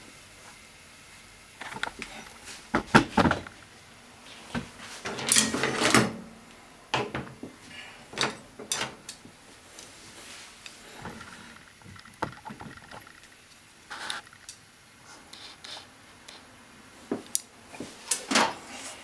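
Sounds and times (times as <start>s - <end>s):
utensils rattling clatter: 5.0s - 6.2s, 8.1s - 9.2s.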